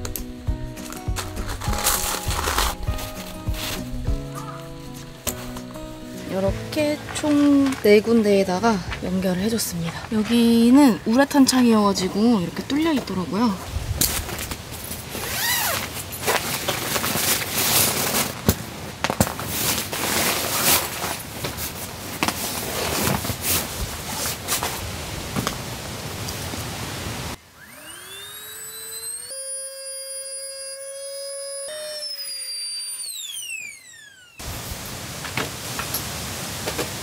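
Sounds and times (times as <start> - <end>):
electric air pump whining: 0.0 - 7.8, 27.4 - 34.6
nylon sack and mat rustling: 1.1 - 4.3, 13.7 - 25.4.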